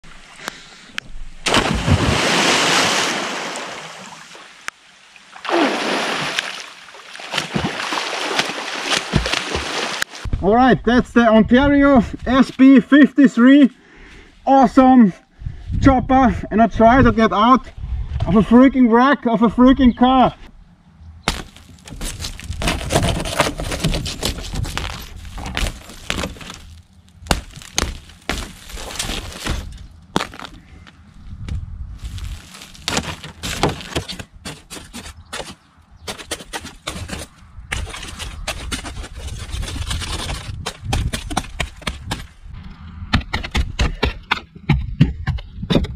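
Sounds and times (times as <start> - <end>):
big splash into water: 1.4 - 4.3, 5.4 - 10.0
churning water: 1.4 - 10.3
splashing and pouring water: 1.4 - 10.3
windshield glass crunching and cracking: 21.3 - 30.6, 32.0 - 35.0.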